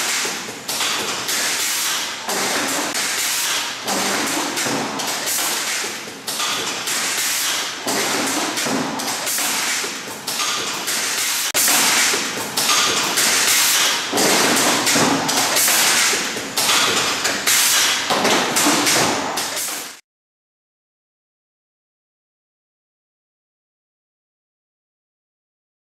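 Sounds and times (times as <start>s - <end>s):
machine mechanism clattering: 0.0s - 20.0s.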